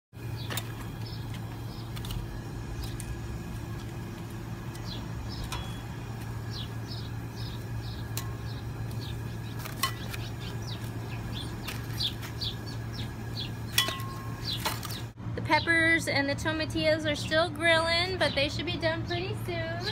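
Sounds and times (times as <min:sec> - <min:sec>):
small birds chirping: 0:00.2 - 0:15.7
low hum: 0:00.2 - 0:19.9.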